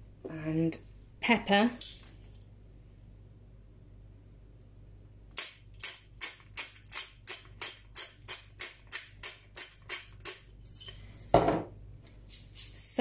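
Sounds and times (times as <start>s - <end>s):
pepper grinder grinding: 5.3s - 11.0s, 12.2s - 13.0s.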